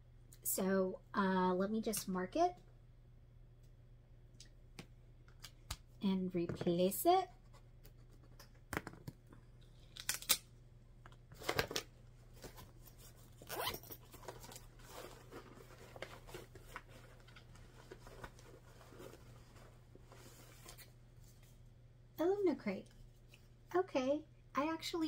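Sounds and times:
cloth bag and paper rustling: 12.4 - 20.8.

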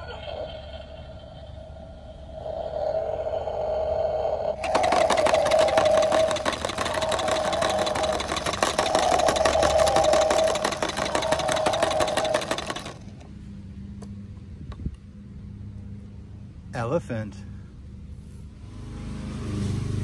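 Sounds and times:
toy truck engine sound effect: 0.0 - 13.2.

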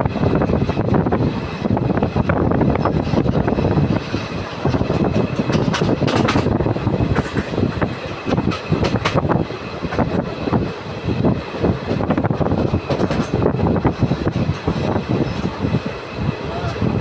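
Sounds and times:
train wheels rumbling on rails: 0.0 - 17.0
irregular clanks and knocks: 4.6 - 10.1, 12.6 - 13.5.

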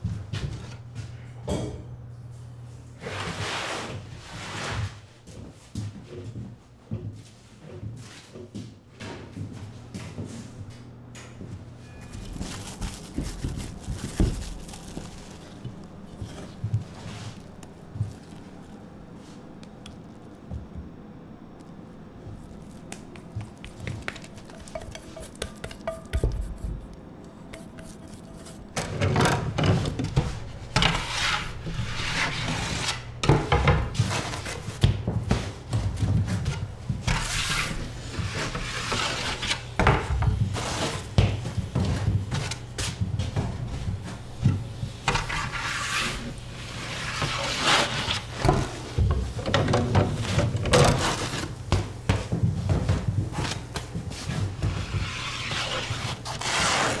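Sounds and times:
spatula scraping dough in bowl: 23.6 - 28.8, 29.8 - 33.1, 37.1 - 39.7, 45.0 - 48.8, 54.2 - 57.0
bread scraping on wooden peel: 27.6 - 28.8, 30.8 - 33.1, 37.1 - 39.7, 45.1 - 48.4, 50.8 - 51.6, 54.7 - 57.0.

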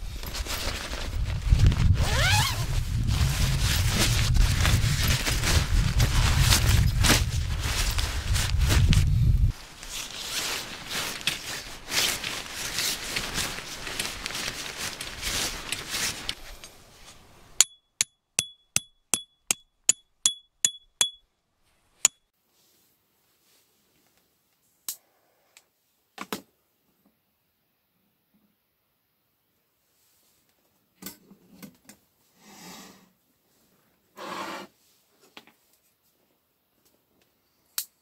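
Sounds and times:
tent fabric rustling: 0.0 - 17.5
hammer striking metal tent peg: 17.6 - 21.2.

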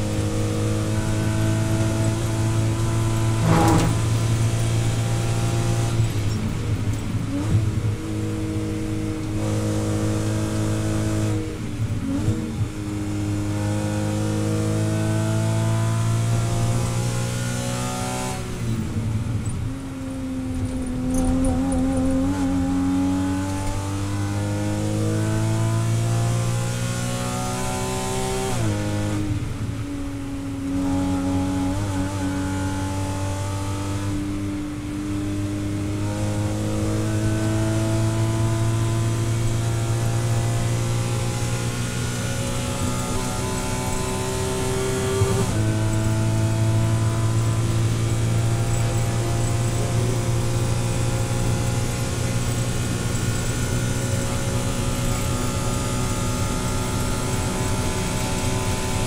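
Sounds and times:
race car engine revving: 0.0 - 18.9, 35.5 - 59.0.

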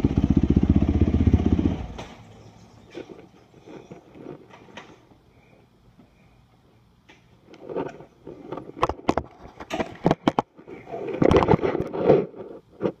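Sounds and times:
rustling and scraping handling noise: 2.8 - 6.3, 7.1 - 13.0.

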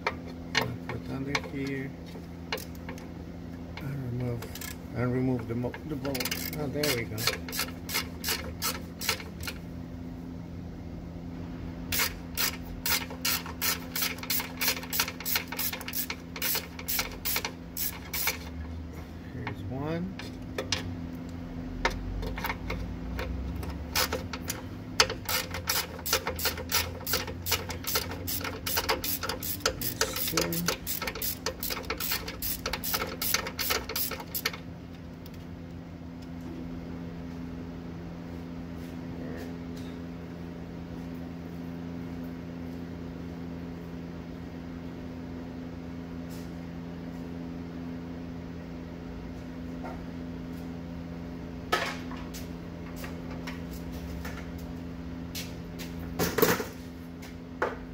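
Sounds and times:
steady low hum: 0.0 - 57.9
ratchet wrench clicking: 4.5 - 4.8, 6.1 - 9.6, 11.9 - 18.5, 23.6 - 34.6.

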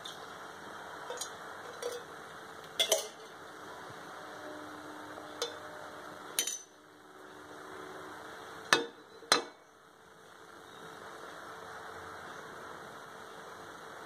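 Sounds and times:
steady low hiss: 0.0 - 14.0
metallic clinks on a pot: 1.1 - 2.1, 2.8 - 3.3, 5.4 - 5.6.

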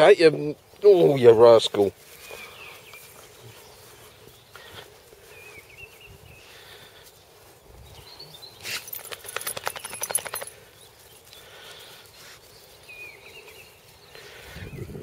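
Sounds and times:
dog collar tags jingling: 8.6 - 10.7.

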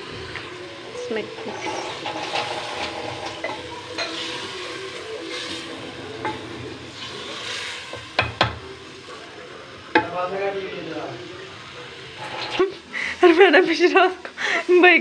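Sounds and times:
spoon knocking on pot: 7.9 - 8.6, 9.9 - 10.1.

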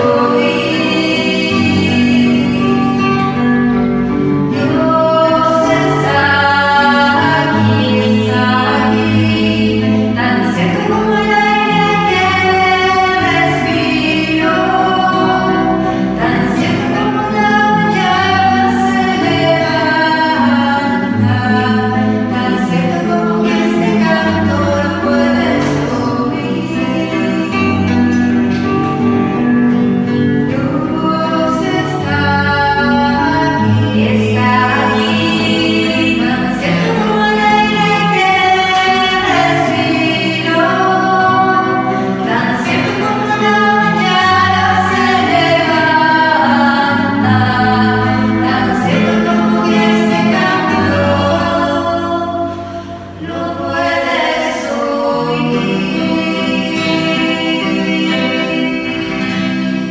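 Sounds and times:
voices singing a slow hymn: 0.0 - 59.9.

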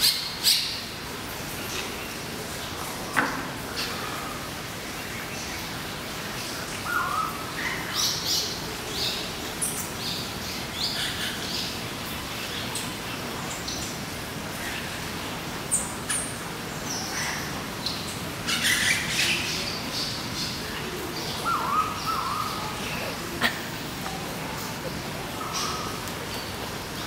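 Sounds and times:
steady background hiss: 0.0 - 27.0
birds chirping and calling: 3.7 - 27.0.

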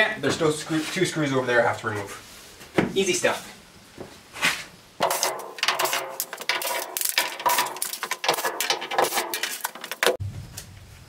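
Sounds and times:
metallic rattling and clinking: 5.0 - 10.2.

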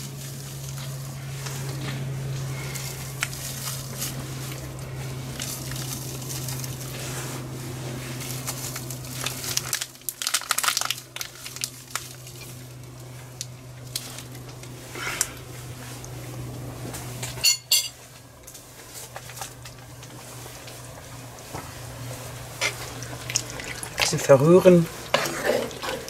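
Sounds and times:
steady low hum: 0.0 - 26.0
packet crinkling: 2.6 - 6.9, 8.2 - 14.5.

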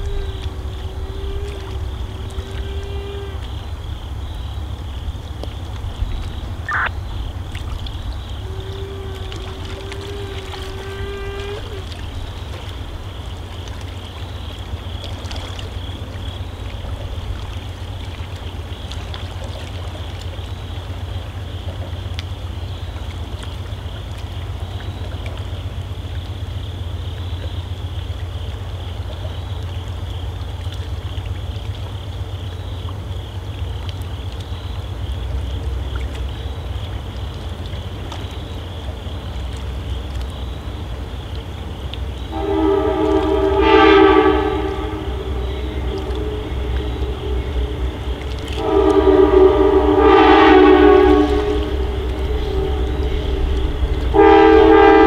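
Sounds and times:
low rumble: 0.0 - 21.3, 33.4 - 55.0
distant held tone: 6.6 - 7.1, 42.3 - 55.0
short rising chirp: 6.7 - 6.9.

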